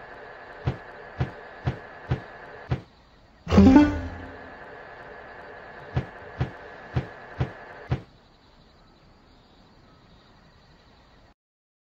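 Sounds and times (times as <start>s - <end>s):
reels stopping with thuds: 0.6s - 2.9s, 5.9s - 8.1s
slot reels whirring: 3.5s - 4.6s.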